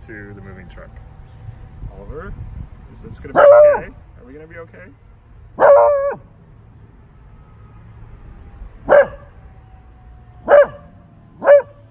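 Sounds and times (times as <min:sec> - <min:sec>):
dog barking: 0:03.3 - 0:03.9, 0:05.6 - 0:06.2, 0:08.9 - 0:09.3, 0:10.4 - 0:11.8.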